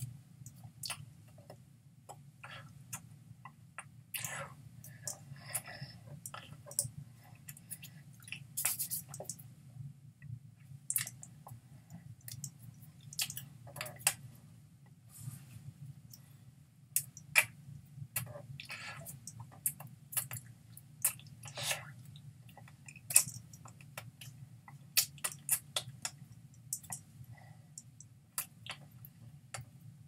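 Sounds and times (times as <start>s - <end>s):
steady low hum: 0.0s - 30.0s
lip smacks: 8.2s - 9.4s, 13.2s - 14.2s.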